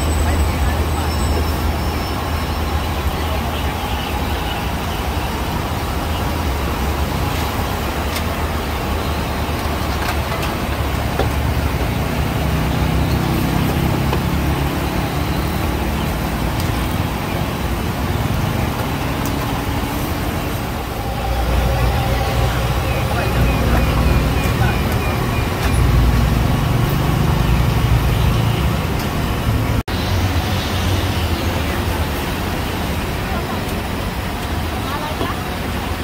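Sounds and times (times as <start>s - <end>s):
continuous low rumble: 15.6s - 28.1s.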